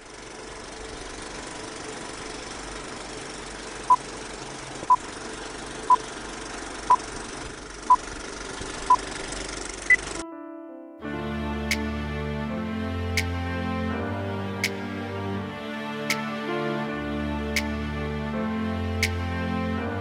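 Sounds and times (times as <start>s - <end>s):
projector whir and rattle: 0.0s - 10.2s.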